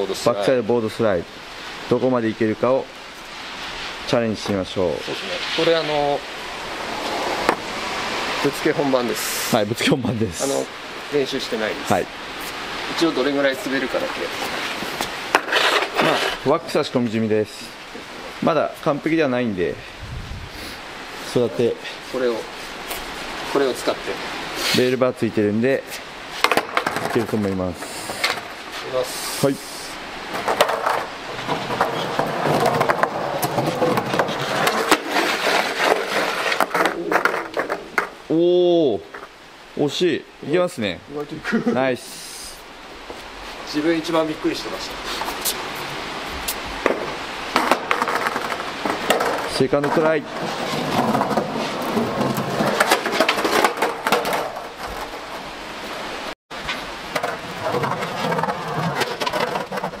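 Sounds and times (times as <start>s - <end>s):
skateboard wheels rolling on concrete: 0.0s - 40.1s, 40.9s - 60.0s
skateboard sliding on curb: 3.2s - 10.7s, 11.4s - 16.9s, 25.9s - 38.4s, 43.1s - 56.0s, 56.6s - 60.0s
sharp skateboard clack: 7.0s - 7.7s, 15.0s - 16.4s, 26.4s - 27.5s, 30.3s - 38.2s, 46.5s - 55.4s.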